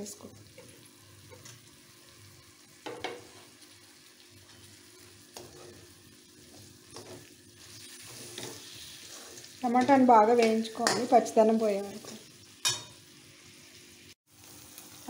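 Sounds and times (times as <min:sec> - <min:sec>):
vegetables sizzling in oil: 0:00.0 - 0:15.0
metal spatula scraping pan: 0:08.0 - 0:11.3.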